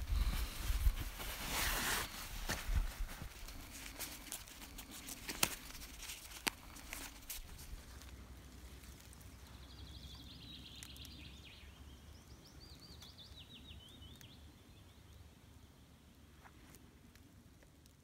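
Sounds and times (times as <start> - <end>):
faint outdoor ambience: 0.0 - 18.0
small bird chirping: 9.2 - 15.2.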